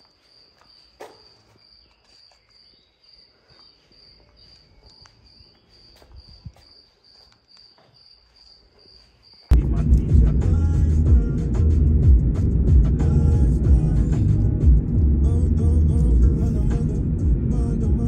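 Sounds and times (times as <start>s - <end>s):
cricket chirping: 0.0s - 9.6s
faint footsteps on paving: 0.0s - 9.6s.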